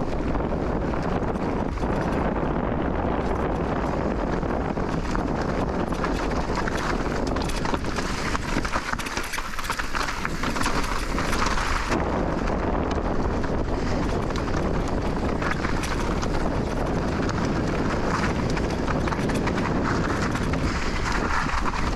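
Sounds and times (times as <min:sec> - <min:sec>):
bike rattling and clicking: 0:00.0 - 0:21.9
wind buffeting microphone: 0:00.0 - 0:21.9
tyres crunching on rocks: 0:04.8 - 0:12.5.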